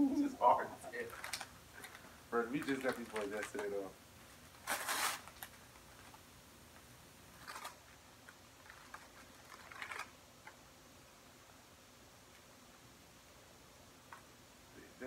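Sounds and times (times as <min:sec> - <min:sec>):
plastic wrapper crinkling: 0:00.9 - 0:03.9, 0:04.5 - 0:06.2, 0:07.3 - 0:10.2.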